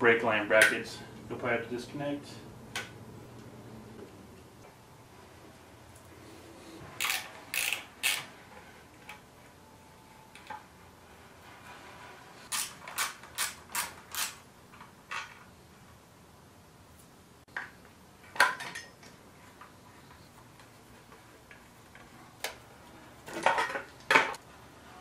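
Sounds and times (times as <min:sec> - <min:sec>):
ratchet wrench clicking: 0:07.0 - 0:08.2.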